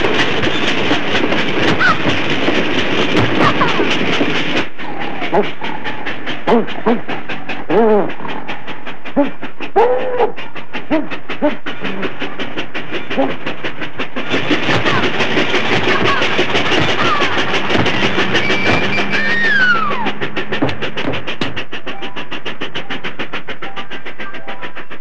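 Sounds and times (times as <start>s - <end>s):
cartoon steam locomotive chugging: 0.0s - 25.0s
dog yelping: 18.4s - 20.2s.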